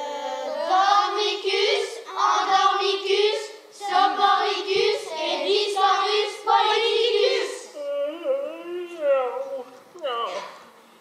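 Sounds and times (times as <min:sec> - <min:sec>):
children singing: 0:00.0 - 0:07.8.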